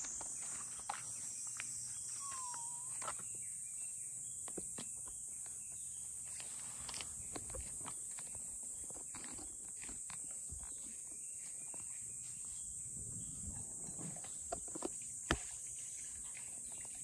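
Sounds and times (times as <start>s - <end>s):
high-pitched insect drone: 0.0s - 3.4s
short whistle dipping in pitch: 2.2s - 3.0s.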